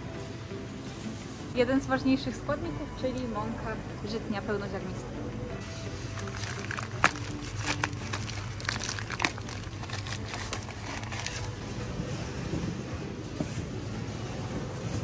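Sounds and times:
plastic wrap crinkling: 6.1s - 11.6s.

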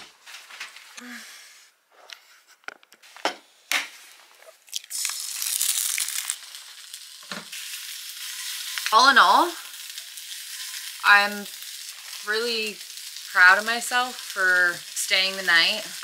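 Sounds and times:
food sizzling in a frying pan: 4.7s - 16.0s.

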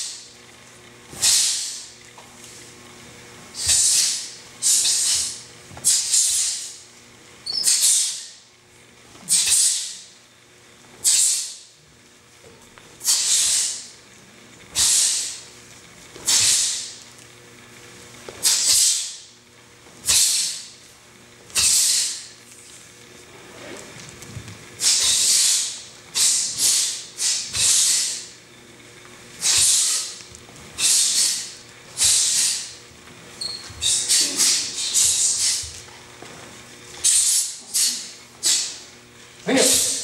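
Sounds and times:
group hissing sharp breaths: 1.1s - 1.9s, 3.6s - 6.8s, 7.6s - 8.4s, 9.2s - 10.1s, 11.0s - 11.6s, 13.0s - 13.9s, 14.7s - 15.4s, 16.2s - 17.0s, 18.4s - 19.2s, 20.0s - 20.7s, 21.6s - 22.3s, 24.8s - 28.4s, 29.4s - 30.2s, 30.8s - 32.8s, 33.8s - 35.7s, 37.0s - 38.8s.

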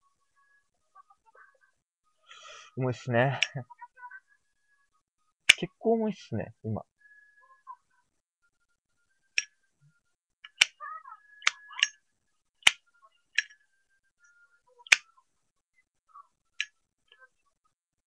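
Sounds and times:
sharp clicks: 10.4s - 10.8s.

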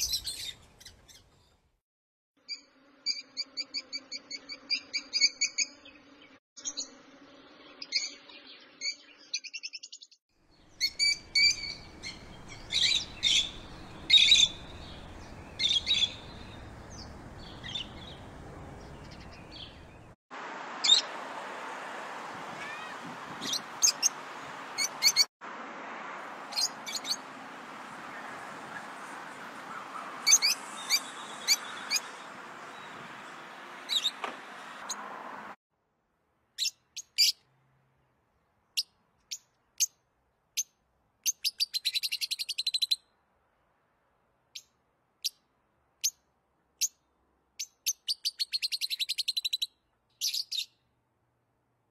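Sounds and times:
lovebirds chirping: 0.0s - 1.6s, 7.9s - 20.2s, 22.4s - 25.3s, 26.4s - 35.1s, 40.6s - 43.0s, 47.6s - 50.9s.

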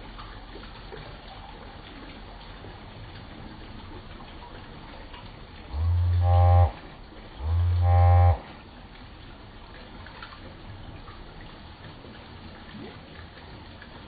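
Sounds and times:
long low rising calls: 5.7s - 6.8s, 7.4s - 8.5s.

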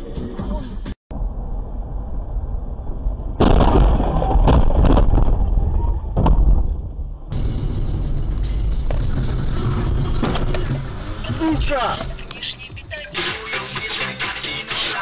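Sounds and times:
car engine and road noise: 0.0s - 15.0s
car crash: 1.2s - 12.1s.

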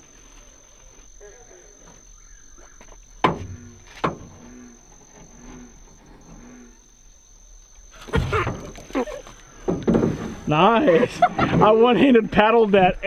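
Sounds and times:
frog calling: 0.0s - 7.0s
high insect trill: 0.0s - 13.0s
sharp knocks: 3.2s - 4.4s.

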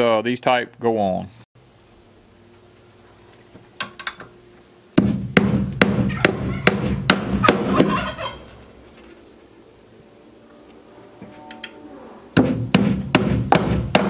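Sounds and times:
hammer striking nails: 5.0s - 7.9s, 12.4s - 14.0s.

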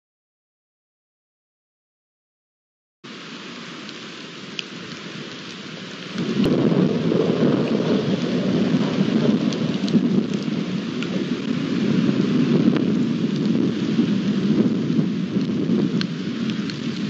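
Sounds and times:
rain hiss: 3.0s - 17.0s
rain drop ticks: 3.8s - 17.0s
rolling thunder rumble: 6.0s - 17.0s.

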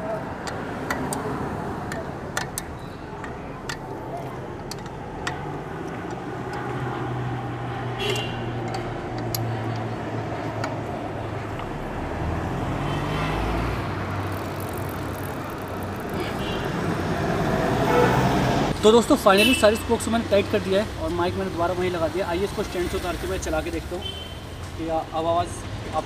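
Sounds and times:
spoke wrench clicking on spokes: 0.4s - 6.9s, 8.0s - 10.9s, 14.2s - 16.2s.

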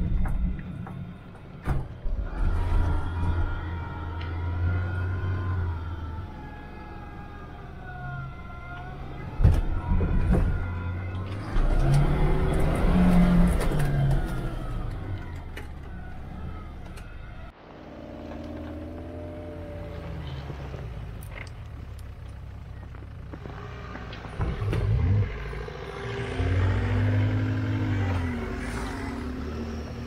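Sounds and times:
engine running steadily: 0.0s - 29.0s
off-road vehicle engine revving: 2.0s - 30.0s
vehicle knocks and bangs: 8.8s - 17.5s.

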